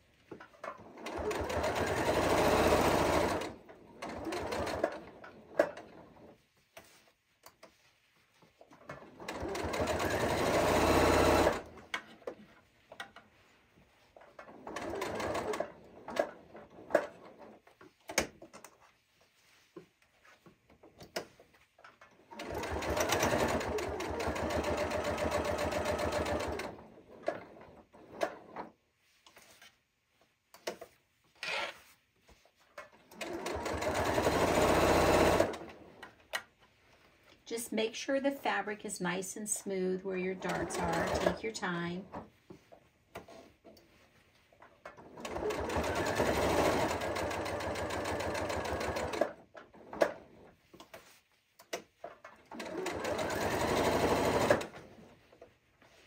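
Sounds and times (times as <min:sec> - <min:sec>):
sewing machine stitching: 0:00.4 - 0:06.4, 0:08.6 - 0:12.4, 0:14.2 - 0:18.3, 0:22.0 - 0:28.8, 0:32.8 - 0:36.2, 0:40.3 - 0:42.3, 0:44.8 - 0:51.1, 0:51.7 - 0:55.2.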